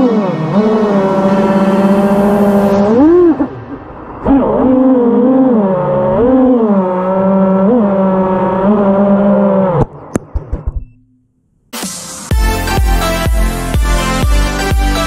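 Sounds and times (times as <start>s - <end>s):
quadcopter motors whining: 0.0s - 5.6s.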